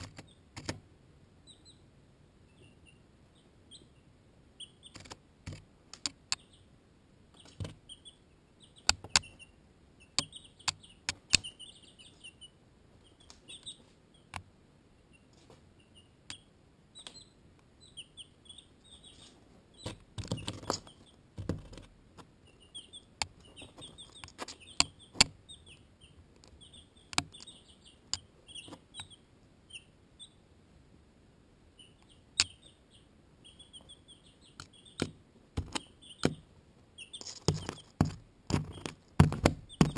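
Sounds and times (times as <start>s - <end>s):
chicks pecking at camera: 0.0s - 0.8s, 4.6s - 6.7s, 7.3s - 14.4s, 18.0s - 29.2s, 31.8s - 39.9s
chicks peeping: 0.0s - 0.8s, 1.4s - 30.5s, 31.7s - 39.9s.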